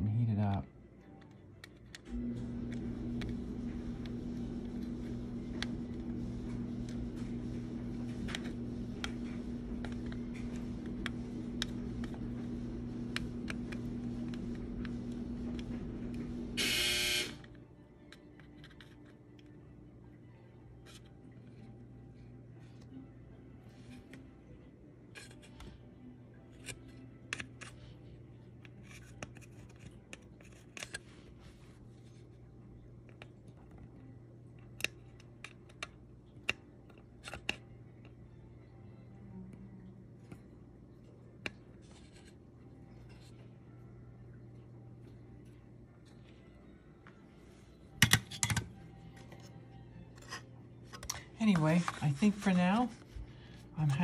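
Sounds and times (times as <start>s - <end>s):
electrical hum: 0.0s - 54.0s.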